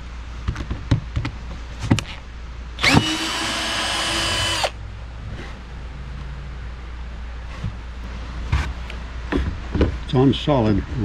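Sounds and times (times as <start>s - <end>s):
power drill whining: 2.8s - 4.7s.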